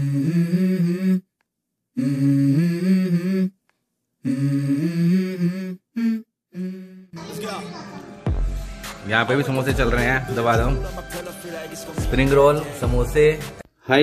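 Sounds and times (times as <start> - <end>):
person humming in a low voice: 0.0 - 1.3, 2.0 - 3.6, 4.2 - 7.8.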